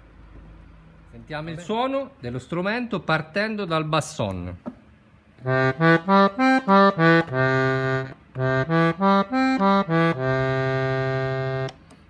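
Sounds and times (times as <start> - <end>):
button accordion low reedy notes: 5.4 - 11.8.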